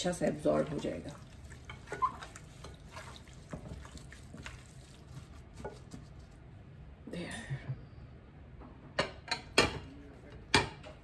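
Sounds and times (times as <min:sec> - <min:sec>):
hands squelching raw chicken: 0:00.6 - 0:06.4.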